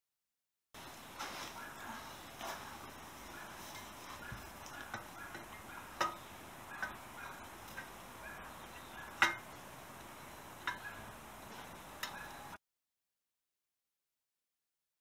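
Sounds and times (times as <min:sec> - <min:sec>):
metal clinks and knocks: 0:09.1 - 0:09.5.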